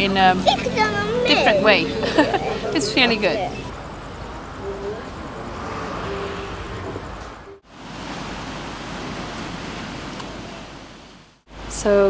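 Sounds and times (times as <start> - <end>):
traffic-like hiss: 3.0 - 12.0
waves washing on a beach: 7.6 - 11.8.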